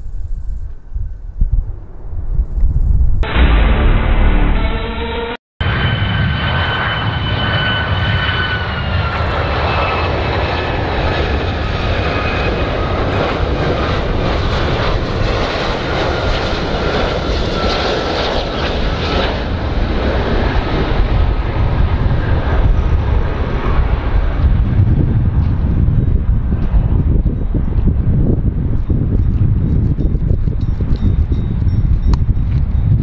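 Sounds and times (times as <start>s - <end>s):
high whine dropping in pitch: 1.4s - 10.6s
airplane engines roaring: 3.2s - 33.0s.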